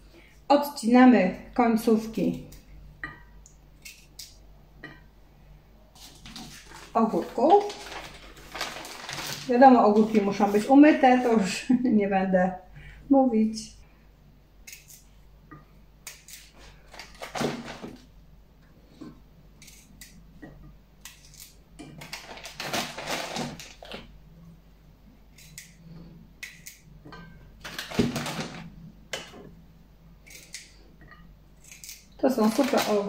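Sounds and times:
plastic bag rustling: 6.0s - 11.5s, 16.6s - 18.1s, 22.0s - 24.1s, 27.6s - 28.8s.

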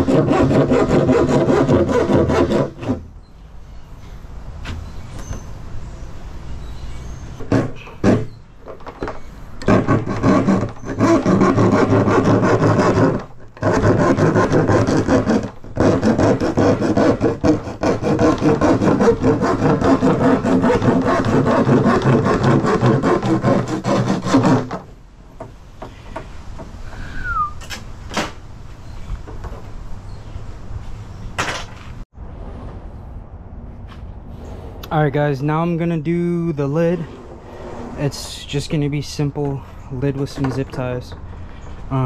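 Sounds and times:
handsaw cutting plastic: 0.0s - 3.1s, 7.4s - 8.9s, 9.6s - 24.9s.

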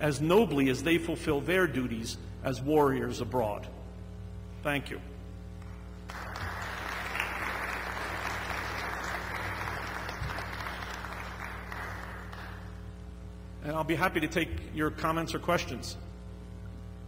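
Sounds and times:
audience applauding: 6.1s - 12.7s.

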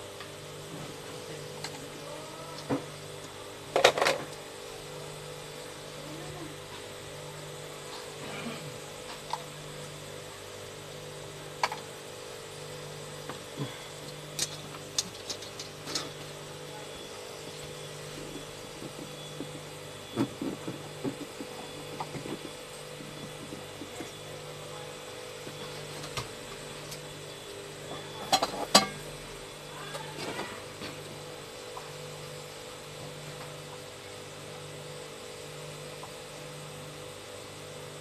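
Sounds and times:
steady electrical hum: 0.0s - 38.0s.

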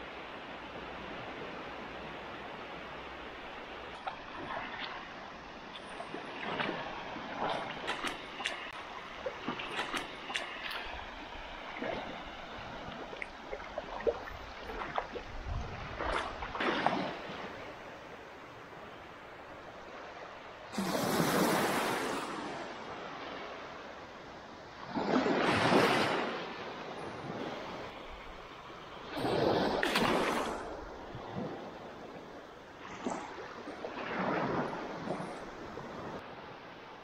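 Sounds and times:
small waves lapping on sand: 0.0s - 37.0s
rush of surf: 20.7s - 23.8s, 24.8s - 32.2s.

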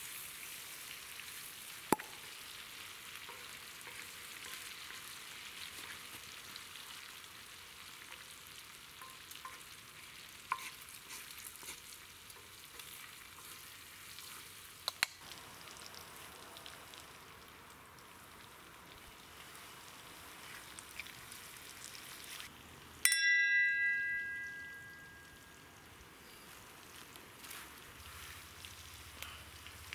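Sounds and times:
meat sizzling in a pan: 0.0s - 22.5s
wine glasses clinking: 23.1s - 25.5s.

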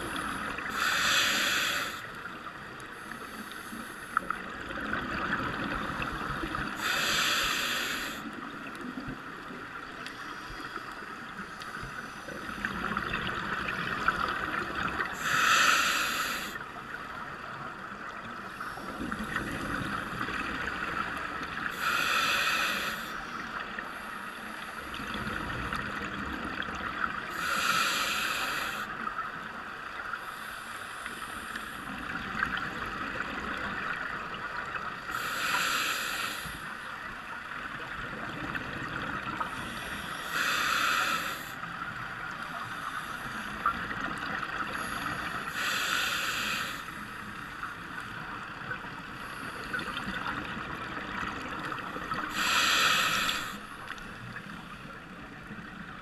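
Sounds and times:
steady underwater hiss: 0.0s - 56.0s
exhaled bubbles rushing underwater: 4.4s - 6.8s.

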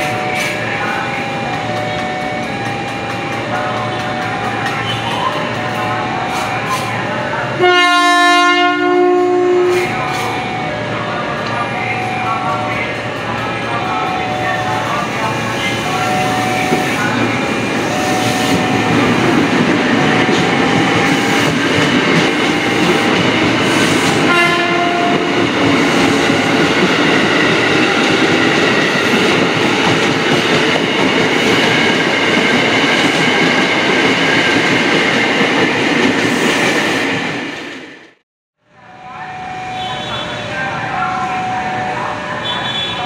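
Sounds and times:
electric train rumbling past: 0.0s - 38.2s
train horn: 7.6s - 10.0s, 24.0s - 25.5s, 39.6s - 40.6s, 42.4s - 43.0s.

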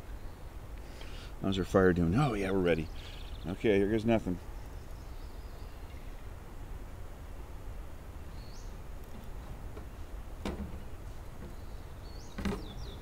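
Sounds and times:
bird chirps: 2.8s - 3.6s, 8.3s - 8.8s, 11.4s - 13.0s
light knocks: 9.1s - 11.6s.

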